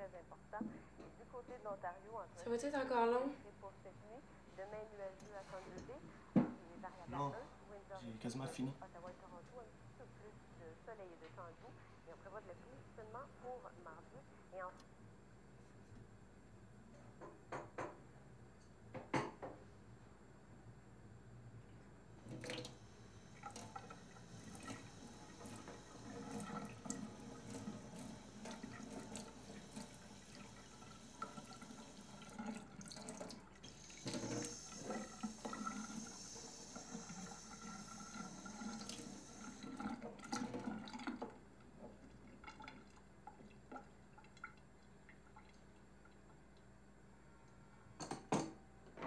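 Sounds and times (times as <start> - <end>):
tap water running into sink: 22.2 - 46.2.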